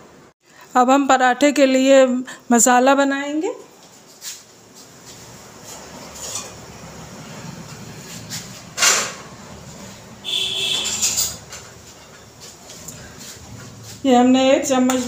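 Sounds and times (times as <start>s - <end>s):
metallic clatter: 10.7s - 12.2s
utensils clinking: 10.8s - 13.0s.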